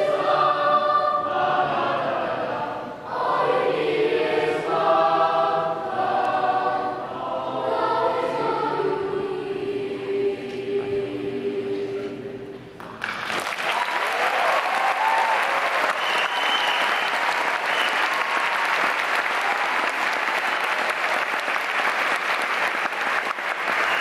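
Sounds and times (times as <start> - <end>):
audience applauding: 12.8 - 24.0.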